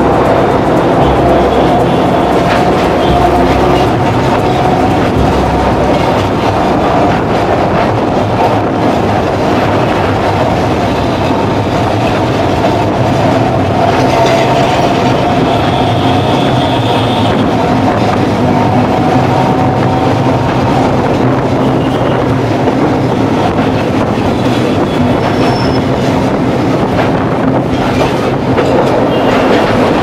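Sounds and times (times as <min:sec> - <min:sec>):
steady hum: 0:00.0 - 0:08.8
tram wheels clattering on rails: 0:00.0 - 0:30.0
high wheel squeal: 0:13.3 - 0:21.0, 0:24.4 - 0:26.2.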